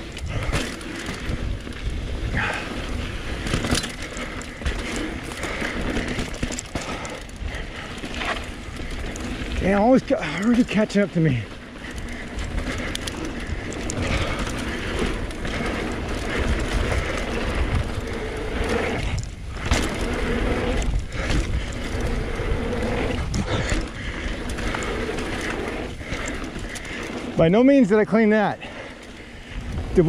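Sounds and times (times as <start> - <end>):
wind rumbling on microphone: 0.0 - 10.7, 11.3 - 27.6, 28.6 - 30.0
bike knocks and rattles: 0.0 - 27.6
tyres rolling over dirt and rocks: 0.0 - 30.0.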